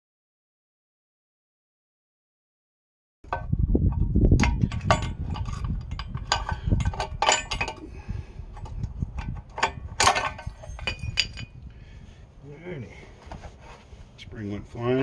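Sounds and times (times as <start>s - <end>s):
metallic clatter: 3.3s - 7.9s, 8.5s - 11.6s
hand tool clinking on metal springs: 9.2s - 11.5s.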